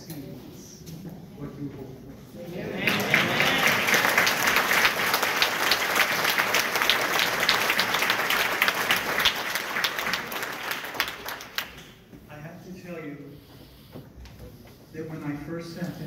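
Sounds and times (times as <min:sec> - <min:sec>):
congregation applauding: 0:02.6 - 0:12.1.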